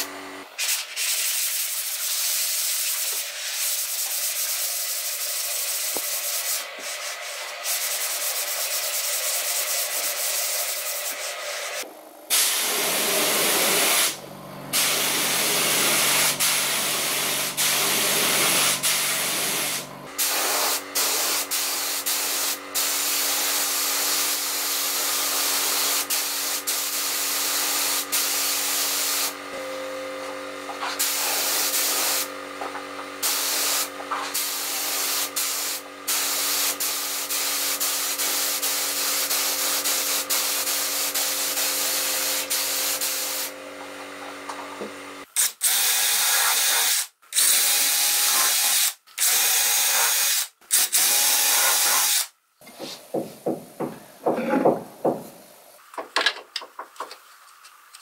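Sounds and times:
spray gun air hiss: 0.6s - 29.4s, 30.9s - 32.3s, 33.2s - 43.5s.

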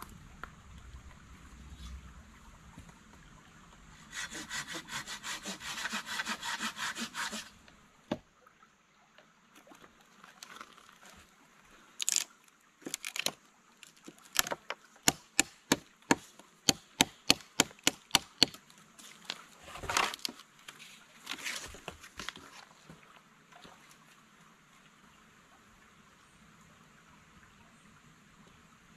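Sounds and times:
saw cutting wood: 4.0s - 7.6s
rustling and brushing: 19.0s - 23.0s.

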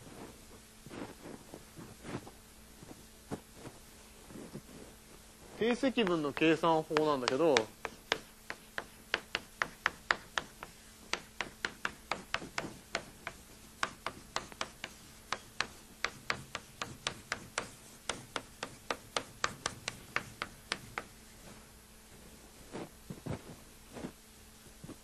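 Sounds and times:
chalk tapping and scraping: 4.3s - 21.7s.

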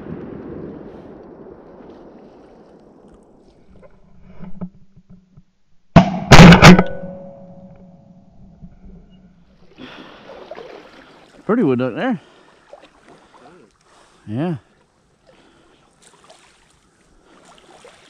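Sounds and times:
shotgun blast: 6.0s - 7.4s.

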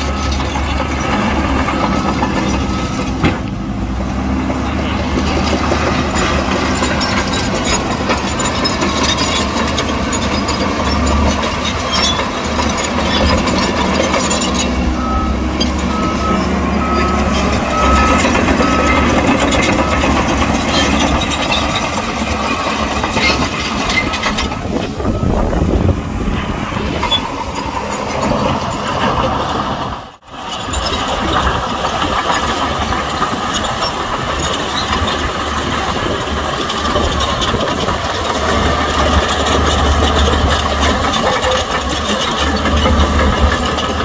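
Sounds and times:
reversing alarm beeping: 0.0s - 3.3s, 13.9s - 21.9s, 22.5s - 27.2s
heavy diesel machinery engines: 0.0s - 44.0s.

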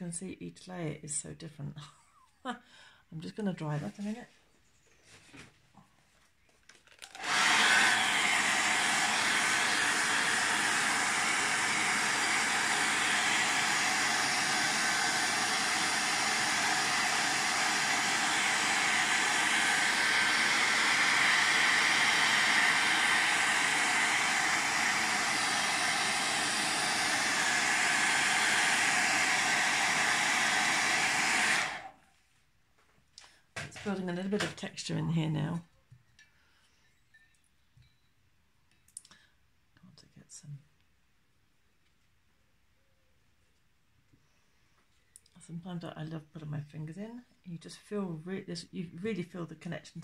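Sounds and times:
hot-air dryer blowing: 7.0s - 32.0s.

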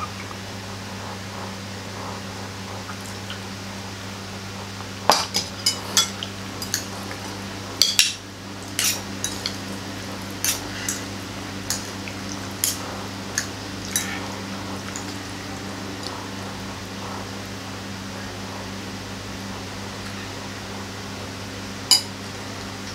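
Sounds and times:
cutlery clinking on plate: 8.8s - 9.6s, 10.4s - 11.1s.

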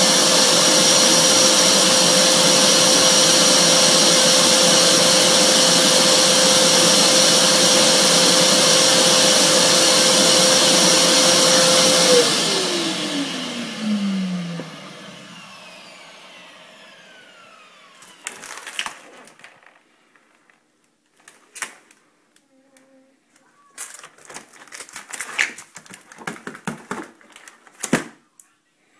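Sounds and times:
vacuum cleaner running: 0.0s - 19.6s
plastic bag crinkling: 18.0s - 22.1s, 23.3s - 28.2s.

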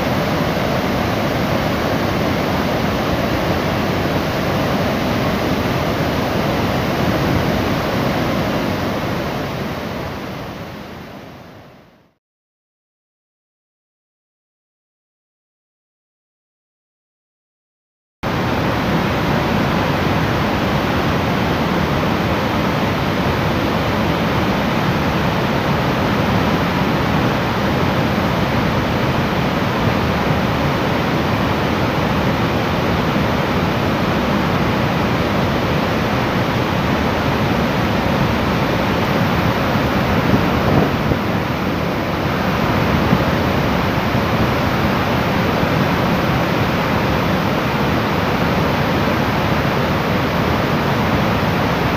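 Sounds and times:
floodwater rushing: 18.3s - 51.9s.

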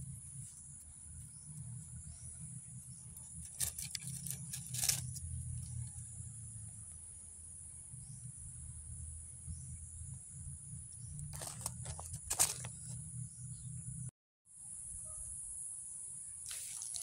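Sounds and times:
low outdoor rumble: 0.0s - 14.1s
rustling dry leaves and twigs: 3.2s - 5.9s, 11.3s - 13.0s, 16.5s - 17.0s.

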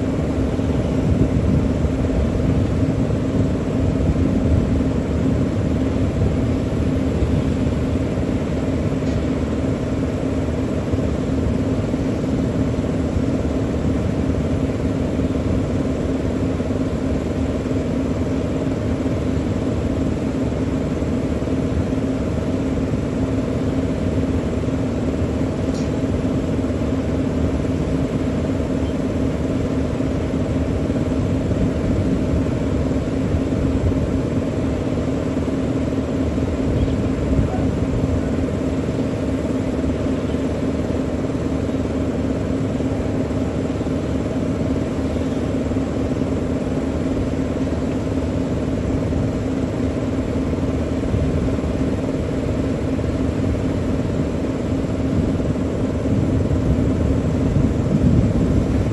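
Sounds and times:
heavy machinery droning: 0.0s - 58.9s.

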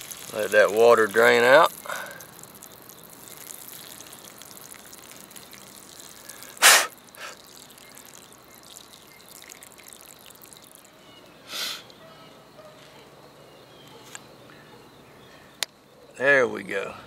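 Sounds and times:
water dribbling from a pipe: 0.0s - 12.0s
short loud rush of noise: 6.6s - 6.9s.

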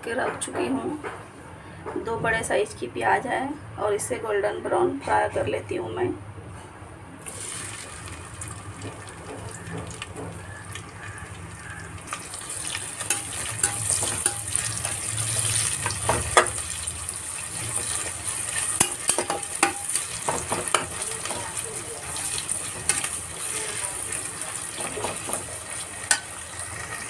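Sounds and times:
onions sizzling in oil: 7.2s - 27.0s
metal spatula scraping pot: 12.1s - 27.0s.

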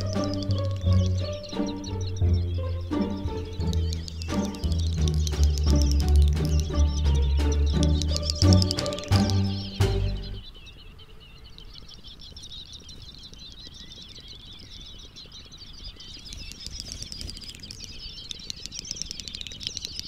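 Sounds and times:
rapid clicking: 0.0s - 1.7s, 3.0s - 10.1s
chorus of high wavering chirps: 0.0s - 20.0s.

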